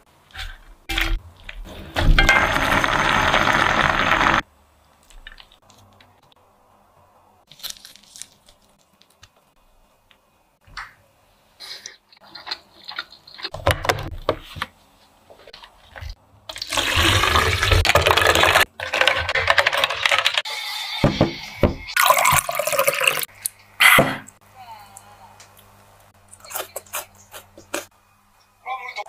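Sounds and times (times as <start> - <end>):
ice and liquid poured into pitcher: 16.5 - 20.4, 22.0 - 23.3.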